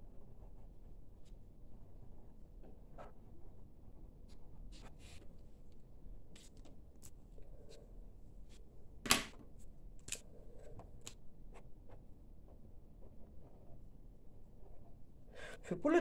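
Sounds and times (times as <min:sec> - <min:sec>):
pens tapping on table: 0:09.1 - 0:09.4.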